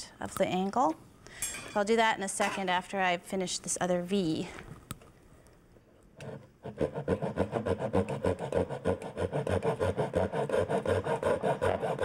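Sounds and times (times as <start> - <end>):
hand saw cutting wood: 6.2 - 12.0.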